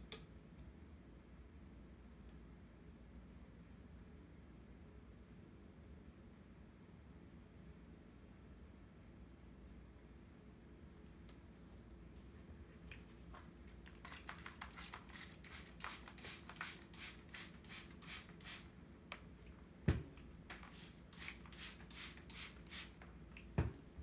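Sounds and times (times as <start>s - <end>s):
spray bottle squirting: 13.9s - 18.7s, 20.5s - 23.0s.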